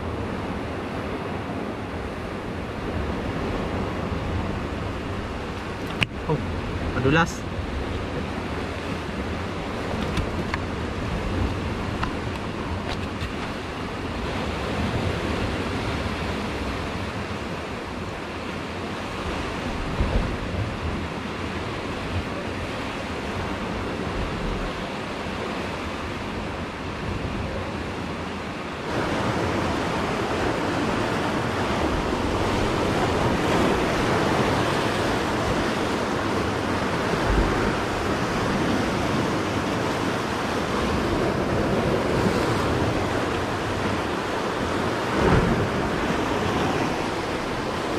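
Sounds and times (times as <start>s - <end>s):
surf on rocky shore: 0.0s - 47.9s
wind thumps on microphone: 19.6s - 21.1s.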